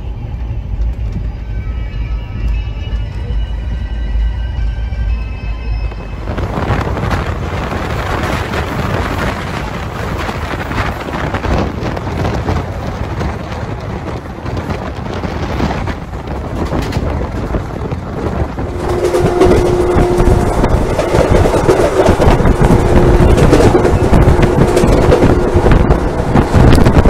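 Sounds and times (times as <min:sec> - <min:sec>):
train wheels rumbling on track: 0:00.0 - 0:27.0
wind rushing over microphone: 0:05.7 - 0:27.0.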